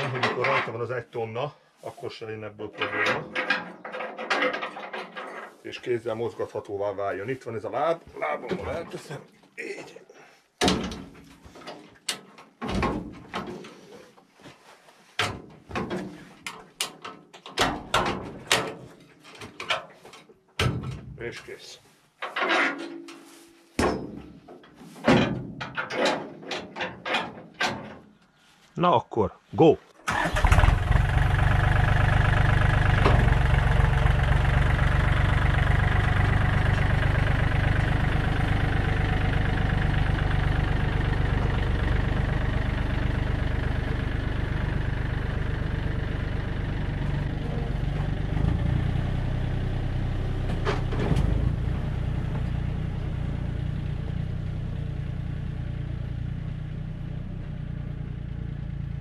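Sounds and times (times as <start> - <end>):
tractor diesel engine running: 30.1 - 59.0.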